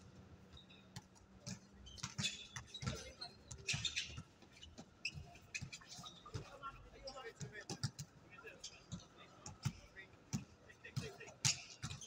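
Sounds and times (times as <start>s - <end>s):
shoe squeaks: 0.5s - 0.9s, 1.5s - 7.2s, 11.4s - 12.0s
basketball bouncing on court: 0.5s - 6.6s, 8.9s - 12.0s.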